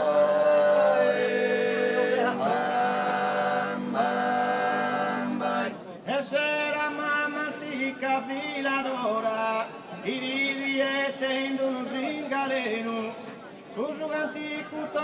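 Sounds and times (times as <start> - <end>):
low vocal drone: 0.0 - 5.8
men singing in close harmony: 0.0 - 13.1.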